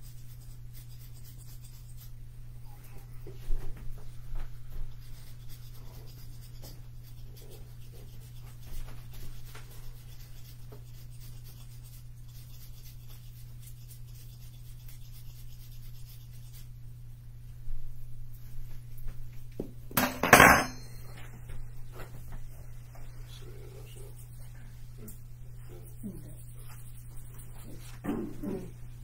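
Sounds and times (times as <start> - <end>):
scratchy rubbing and rustling: 0.0 - 2.2, 4.5 - 16.8.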